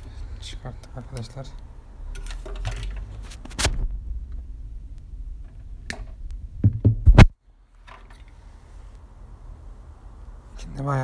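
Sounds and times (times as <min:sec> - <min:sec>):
low rumble: 0:03.7 - 0:06.6
board knocking on wooden table: 0:06.6 - 0:07.1.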